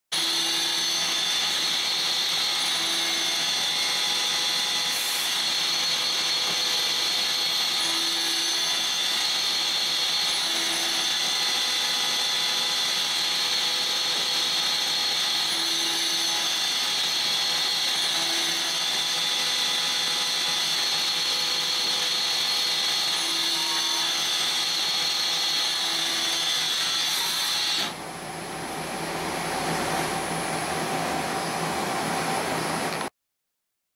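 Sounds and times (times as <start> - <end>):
lathe machining whine: 0.2 - 33.1
cutting and spindle hiss: 3.4 - 10.4.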